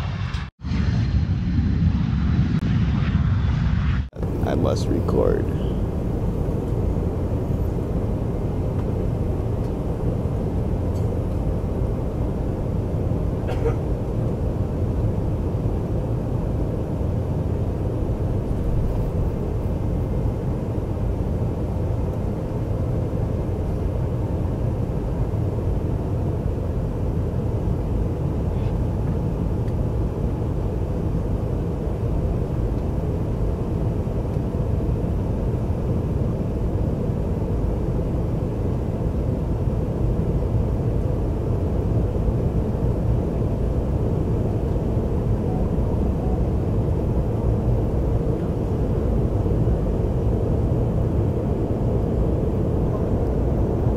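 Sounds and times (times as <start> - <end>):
rushing airflow: 0.0 - 10.0
jet engines droning in cabin: 0.0 - 53.9.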